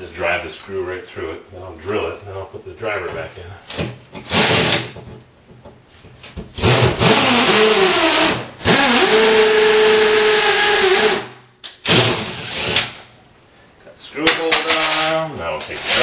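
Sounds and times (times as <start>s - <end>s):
cordless drill whining: 6.6s - 11.3s.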